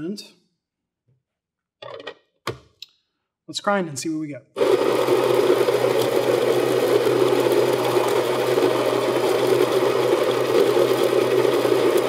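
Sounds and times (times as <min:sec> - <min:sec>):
coffee grinder grinding beans: 0:04.6 - 0:12.0.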